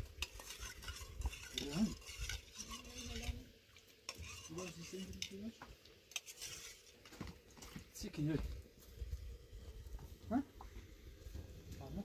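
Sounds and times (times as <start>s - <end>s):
pots and utensils clinking: 0.0s - 3.4s, 4.0s - 5.5s.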